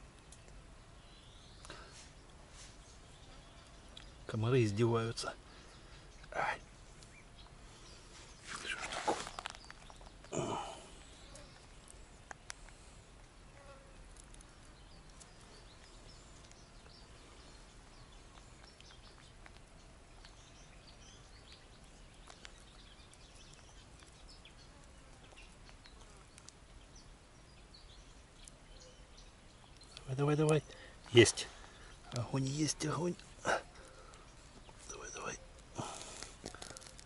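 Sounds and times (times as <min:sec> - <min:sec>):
rustle: 0:00.0 - 0:37.0
small high chirps and ticks: 0:00.0 - 0:37.0.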